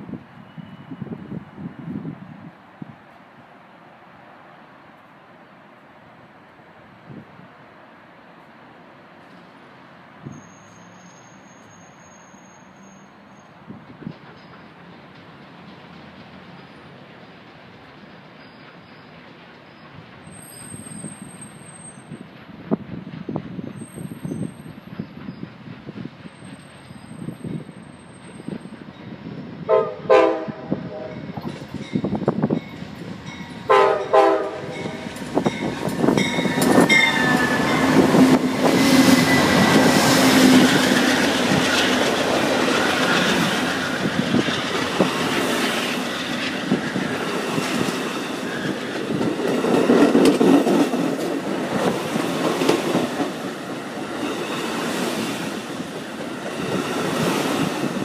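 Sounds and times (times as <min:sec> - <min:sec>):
train passing rumble: 0:00.0 - 0:58.0
train horn blasts: 0:29.7 - 0:31.4, 0:33.7 - 0:35.2.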